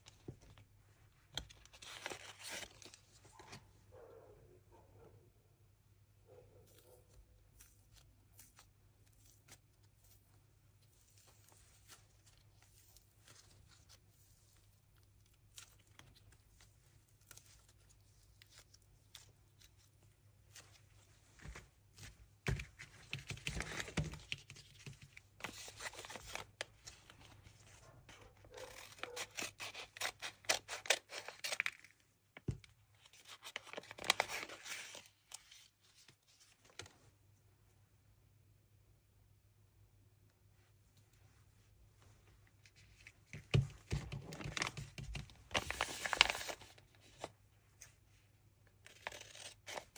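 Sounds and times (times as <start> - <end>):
paper rustling and tearing: 1.4 - 3.6, 22.7 - 27.8, 28.4 - 31.9, 33.0 - 36.9, 43.9 - 47.3, 48.9 - 49.9
paper bag handling noises: 43.9 - 47.3.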